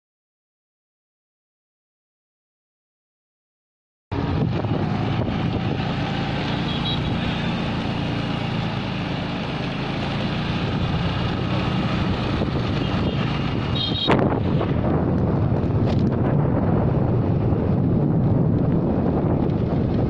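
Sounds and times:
traffic noise: 4.1 - 20.0
wind: 4.1 - 20.0
motor scooter engine hum: 4.2 - 20.0.

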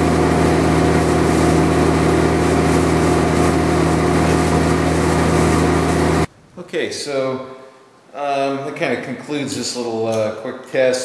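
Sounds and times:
welder electrical hum with hiss: 0.0 - 8.7.

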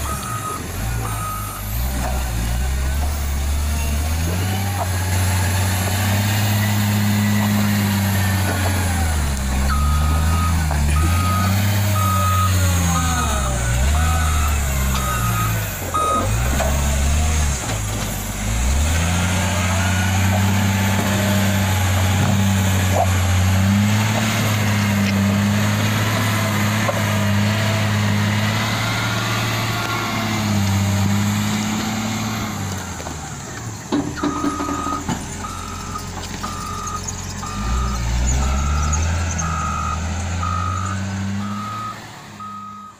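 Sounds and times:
reversing alarm beeps: 0.0 - 1.8, 9.6 - 16.4, 34.2 - 42.9
diesel engine working under load: 0.0 - 42.9.

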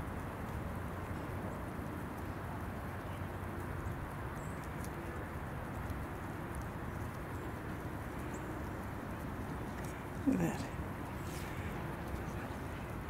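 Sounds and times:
geese plucking grass: 0.0 - 13.0.

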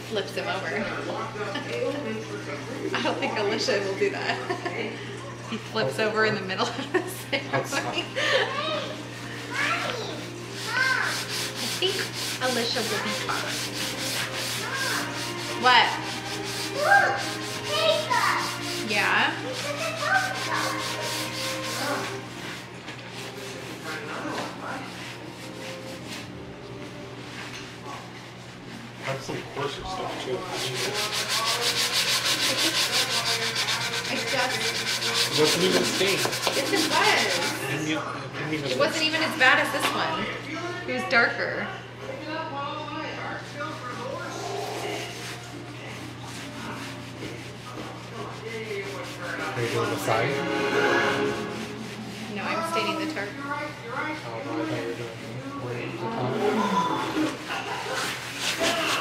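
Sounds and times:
rag scraping on wood: 9.4 - 26.3, 29.9 - 37.7, 43.9 - 53.3, 57.2 - 59.0
sanding sponge rasping on wood: 9.5 - 26.3, 30.0 - 37.7, 43.5 - 50.3, 51.3 - 53.3, 57.3 - 59.0.

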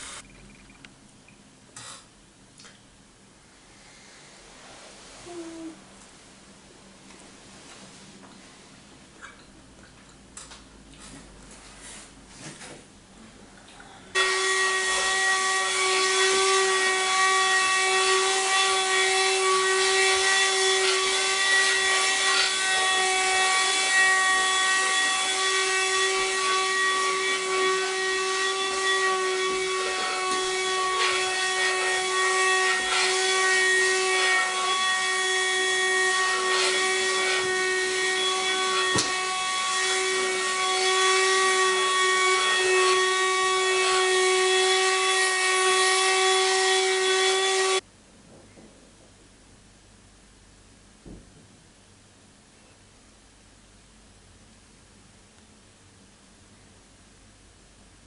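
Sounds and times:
cordless vacuum cleaner running: 14.2 - 47.8.

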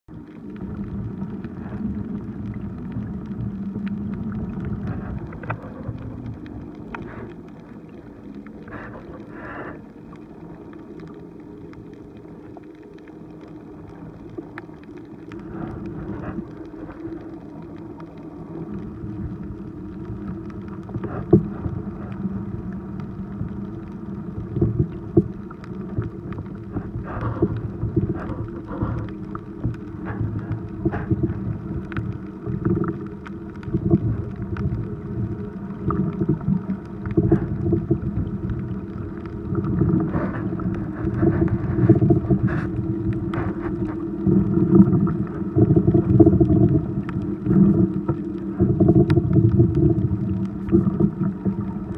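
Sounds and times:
underwater rumble: 0.0 - 51.9
bubbly rushes: 24.2 - 51.9.

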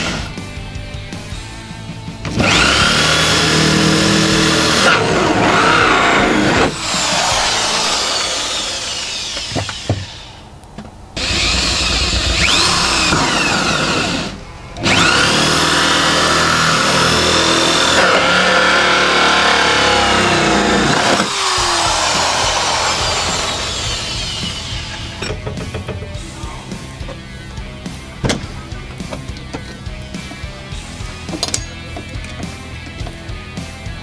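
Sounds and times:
power drill cutting plastic: 2.3 - 10.4, 11.2 - 26.2.

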